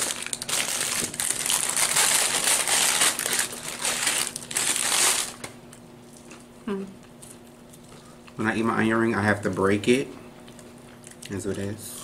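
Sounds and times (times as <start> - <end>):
paper bag crinkling: 0.0 - 5.5.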